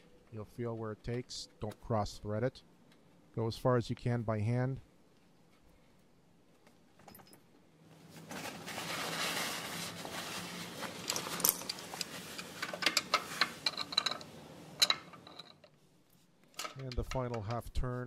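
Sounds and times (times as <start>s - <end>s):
cloth rag rubbing on metal: 8.0s - 13.8s.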